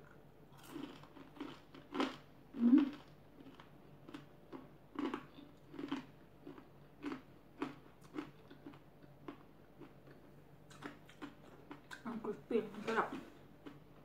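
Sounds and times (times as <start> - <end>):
person chewing crispy food: 0.0 - 12.1, 13.1 - 14.0.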